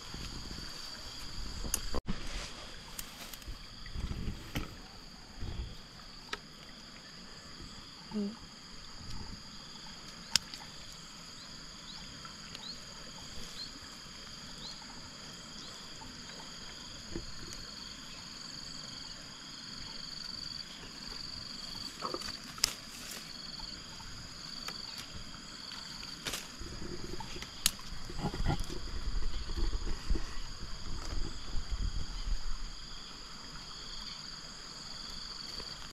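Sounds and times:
insect chorus: 0.0 - 35.9
plant stems snapping and rustling: 22.0 - 23.3, 26.0 - 28.1.

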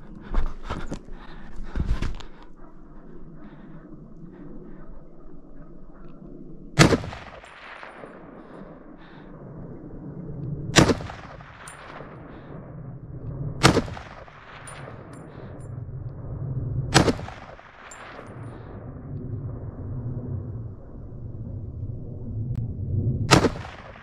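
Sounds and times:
gunshots with echo: 6.8 - 8.4, 10.7 - 12.3, 13.6 - 15.1, 16.9 - 18.3, 23.3 - 24.0.

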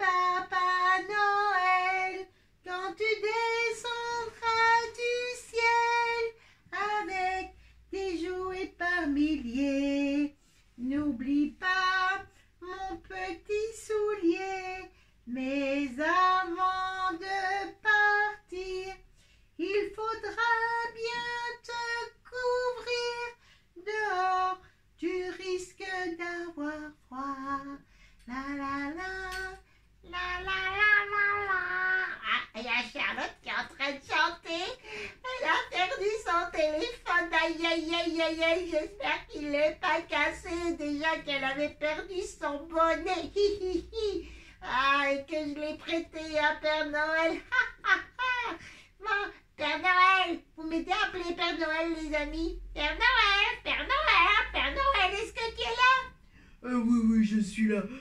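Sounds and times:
childlike voice singing: 28.3 - 57.8.

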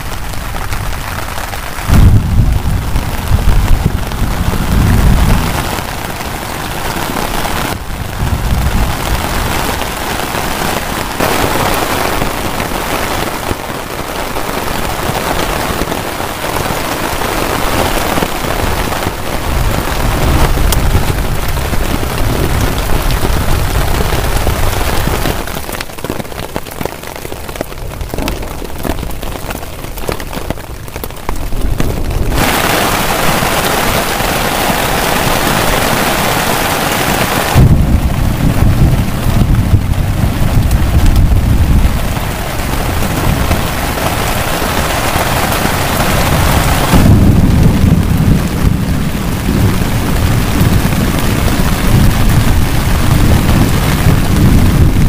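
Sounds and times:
heavy rain on a tent: 0.0 - 55.0
low rumble: 1.9 - 5.7, 37.6 - 43.6.

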